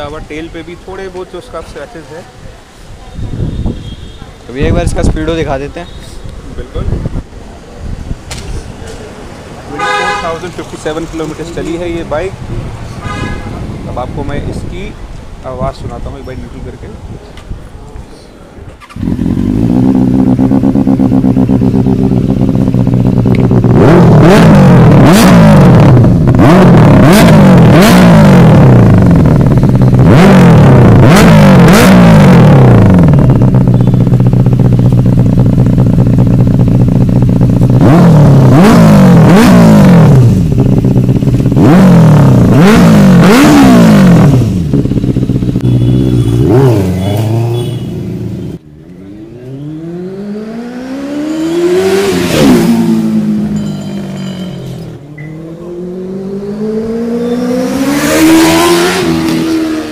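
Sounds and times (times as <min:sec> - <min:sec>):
motorcycle engine idling: 0:18.8 - 0:23.8, 0:32.8 - 0:38.5, 0:40.2 - 0:42.5, 0:44.4 - 0:46.4
approaching motorcycle engine: 0:18.8 - 0:59.9
motorcycle engine revving: 0:18.8 - 0:59.9.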